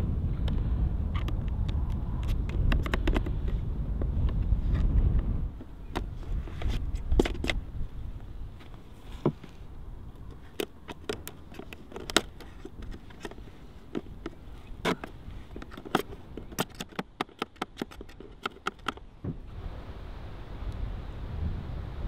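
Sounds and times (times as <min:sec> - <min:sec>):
low wind rumble: 0:00.0 - 0:22.0
sharp taps and clicks: 0:01.2 - 0:03.3, 0:10.2 - 0:19.0.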